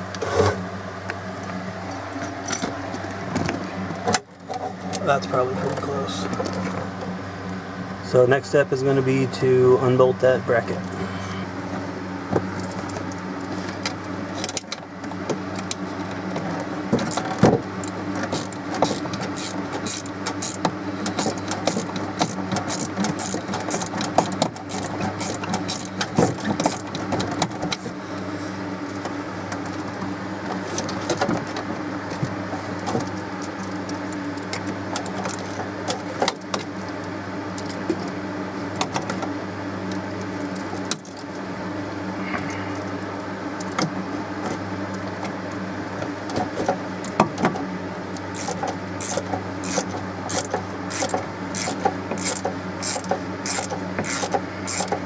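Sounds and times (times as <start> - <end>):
steady mechanical hum: 0.0 - 55.0
wrench clicking on bolts: 18.3 - 26.8, 48.3 - 55.0.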